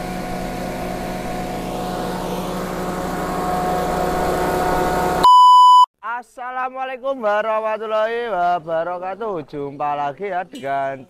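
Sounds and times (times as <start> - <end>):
small petrol engine running: 0.0 - 5.2
loud electronic beep: 4.3 - 5.9.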